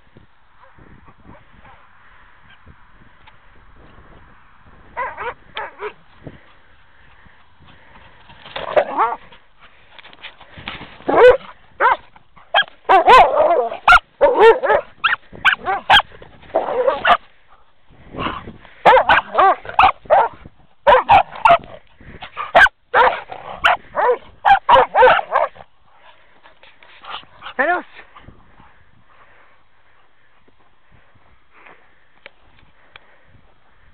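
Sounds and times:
dogs barking and yipping: 0:05.0 - 0:06.0, 0:08.6 - 0:09.4, 0:11.1 - 0:17.3, 0:18.2 - 0:25.6.

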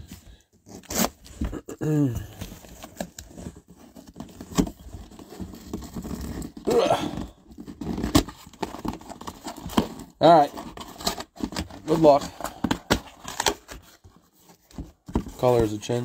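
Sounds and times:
cardboard scraping and rustling: 0:00.0 - 0:01.6, 0:02.2 - 0:16.0
person muttering: 0:01.5 - 0:02.4, 0:06.7 - 0:07.3.

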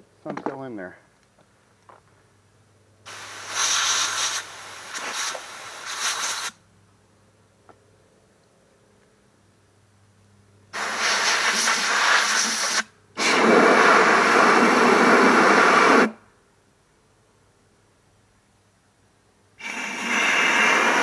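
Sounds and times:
compressed air blow gun bursts: 0:03.1 - 0:06.6, 0:10.8 - 0:16.2, 0:19.6 - 0:21.0.

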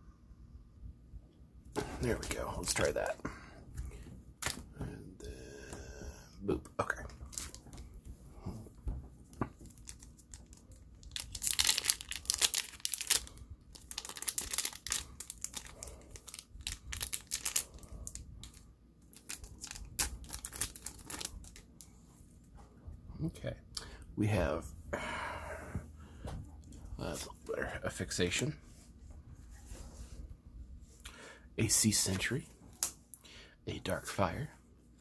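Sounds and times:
wrapper tearing and crinkling: 0:09.6 - 0:21.7.

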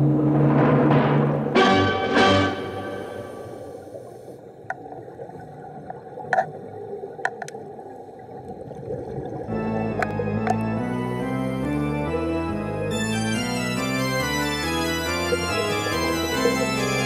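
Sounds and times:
music: 0:00.0 - 0:03.8, 0:09.4 - 0:17.0
underwater bubbles gurgling: 0:03.4 - 0:10.7.

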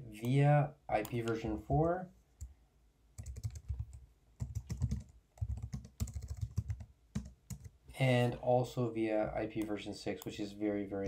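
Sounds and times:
keyboard typing: 0:03.2 - 0:07.8.

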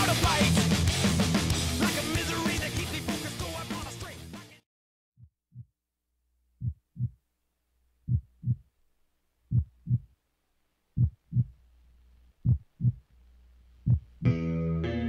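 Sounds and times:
heartbeat thumps: 0:05.2 - 0:05.7, 0:06.6 - 0:07.2, 0:08.1 - 0:08.7, 0:09.5 - 0:10.1, 0:11.0 - 0:11.6, 0:12.4 - 0:13.0, 0:13.8 - 0:14.3.

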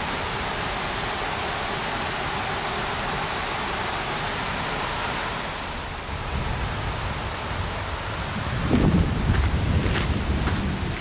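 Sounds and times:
mountain stream rushing: 0:00.0 - 0:11.0
wind buffeting microphone: 0:05.9 - 0:11.0.

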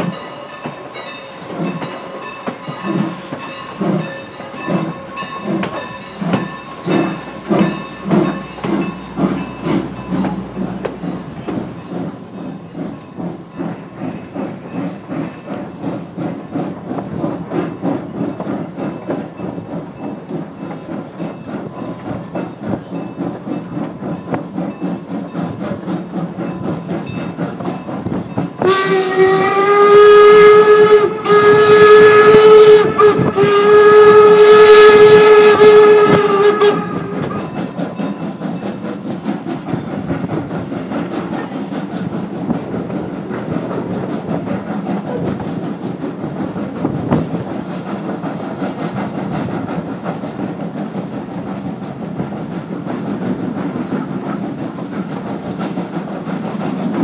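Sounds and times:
locomotive steam: 0:00.0 - 0:57.0
train car rumbling on rails: 0:00.0 - 0:57.0
steam locomotive whistle: 0:28.6 - 0:38.2.

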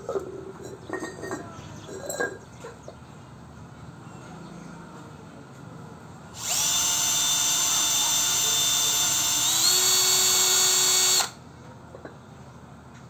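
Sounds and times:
cordless drill drilling into clay: 0:06.4 - 0:11.4.

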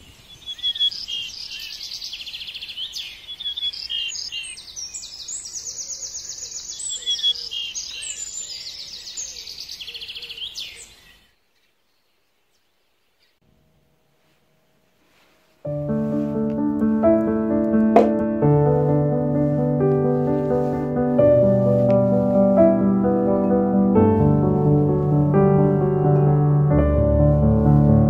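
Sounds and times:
songbirds chirping and trilling: 0:00.0 - 0:13.4.

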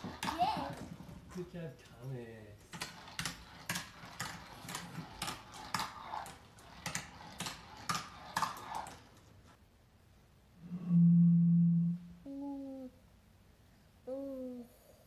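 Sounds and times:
toy cars clattering down ramp: 0:02.7 - 0:09.4.

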